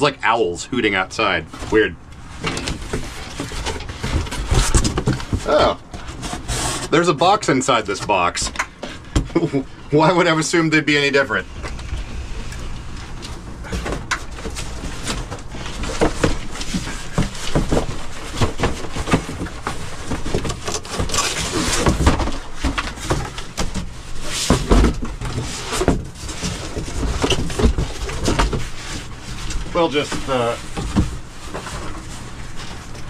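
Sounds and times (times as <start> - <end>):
cardboard scraping: 1.5 - 9.5, 11.0 - 33.0
cardboard flaps rustling: 1.5 - 10.2, 11.1 - 33.0
steady low rumble: 9.4 - 13.7.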